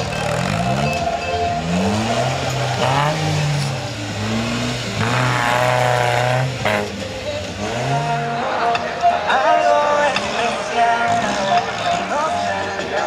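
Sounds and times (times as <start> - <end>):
buggy engine revving hard: 0.0 - 8.6.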